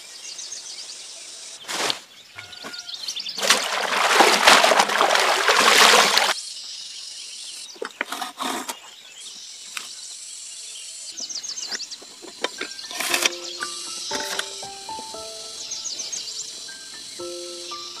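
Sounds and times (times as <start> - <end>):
faint chirping: 0.0 - 3.4, 8.6 - 18.0
leaves sloshed in water: 3.4 - 6.4
leaf rasping through metal blade: 12.8 - 14.6.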